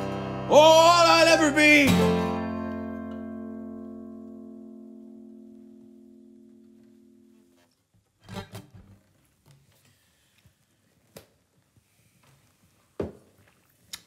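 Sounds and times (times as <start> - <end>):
acoustic guitar chord: 0.0 - 7.5.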